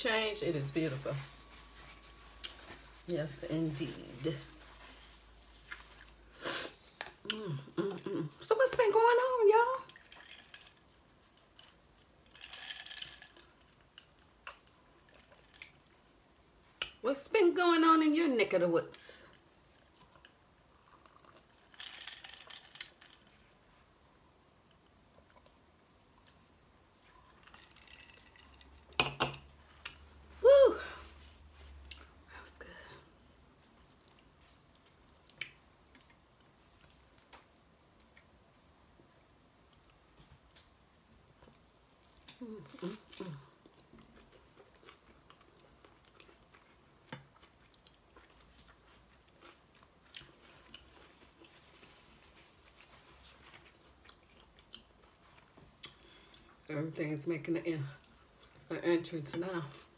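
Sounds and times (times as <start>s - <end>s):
chewing with wet mouth clicks: 33.8s - 37.4s, 41.4s - 52.0s, 53.4s - 56.4s.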